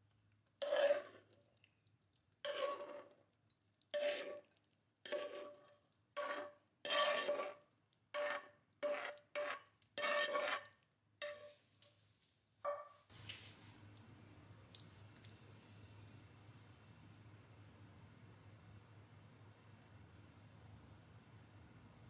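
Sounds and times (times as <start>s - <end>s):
spatula scraping frying pan: 0.6s - 1.4s, 2.4s - 3.2s, 3.9s - 11.6s
quiet room hum: 9.7s - 22.0s.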